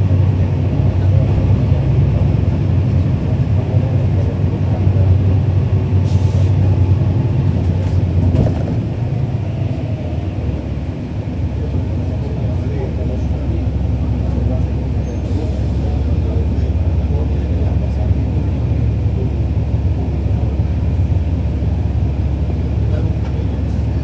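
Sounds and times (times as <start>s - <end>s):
bus engine drone: 0.0s - 24.0s.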